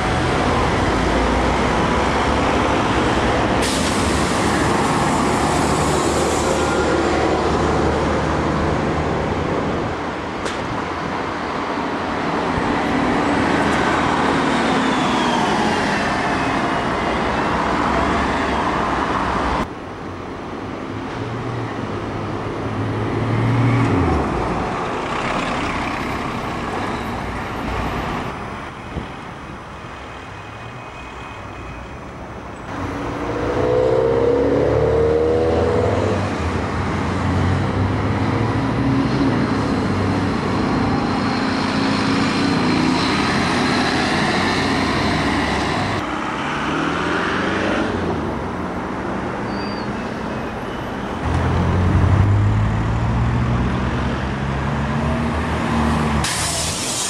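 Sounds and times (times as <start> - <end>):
diesel buses in traffic: 0.0 - 57.0
air brakes hissing: 3.6 - 4.9, 56.2 - 57.0
bus engine revving: 51.2 - 57.0.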